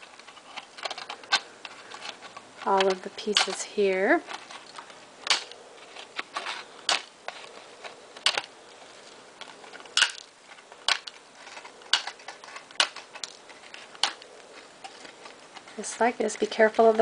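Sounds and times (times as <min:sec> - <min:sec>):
wire cutters snipping wire: 0:02.6 - 0:03.7.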